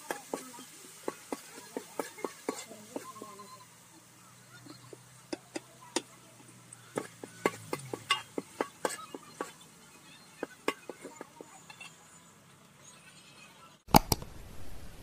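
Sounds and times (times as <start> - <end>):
metal ladle clinking on pot: 7.0 - 9.5.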